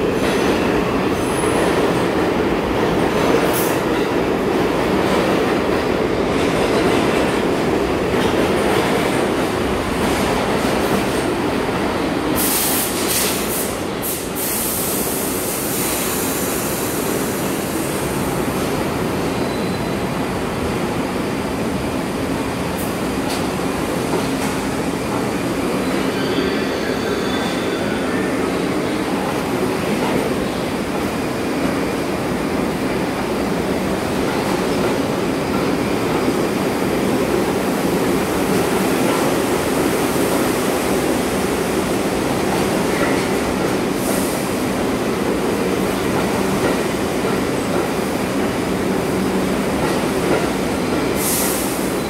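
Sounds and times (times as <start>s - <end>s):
train wheels rumbling on rail: 0.0s - 52.0s
high wheel squeals: 25.8s - 28.1s.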